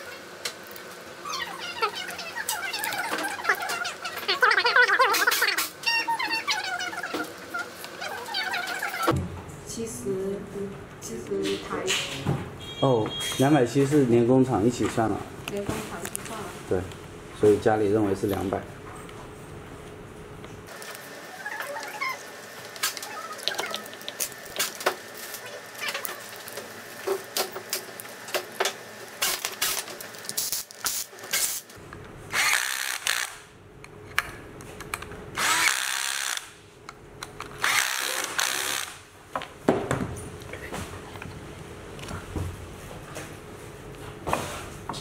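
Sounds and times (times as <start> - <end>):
cordless drill running: 32.4 - 33.4, 35.4 - 36.5, 37.6 - 39.0.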